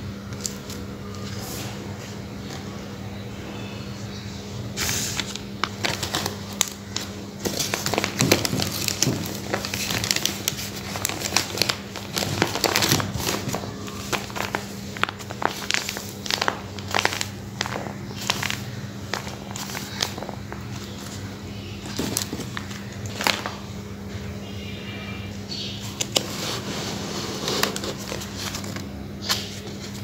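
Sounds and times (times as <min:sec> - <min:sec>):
paper rustling and crinkling: 0:04.8 - 0:23.7, 0:25.8 - 0:30.0.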